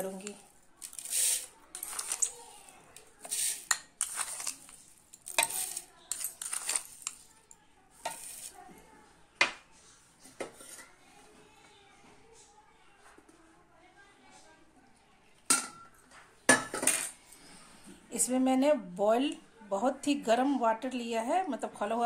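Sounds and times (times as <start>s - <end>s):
sugar grains rattling into bowl: 0.0s - 2.3s, 3.2s - 7.3s, 8.0s - 8.5s
spoon tapping plastic bowl: 8.0s - 8.5s.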